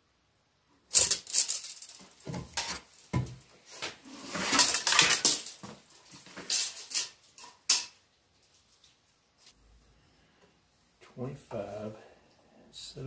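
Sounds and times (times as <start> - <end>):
rattle: 0.9 - 3.3, 4.2 - 9.0
tools and lumber clattering: 0.9 - 8.0.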